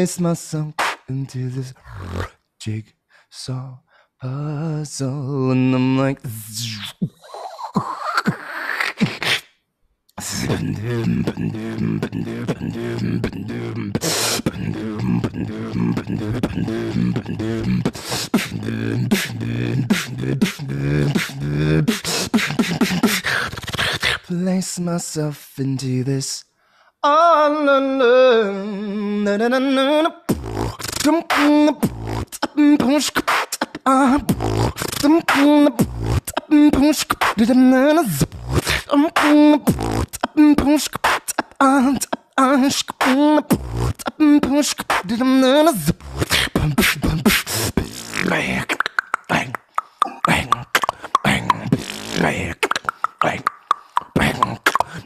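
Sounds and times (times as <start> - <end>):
beatboxing: 0.0 - 2.4, 6.1 - 24.4, 30.0 - 55.0
hissy hi-hat mouth sounds: 0.7 - 1.1, 10.2 - 24.2, 30.3 - 42.2, 42.9 - 55.0.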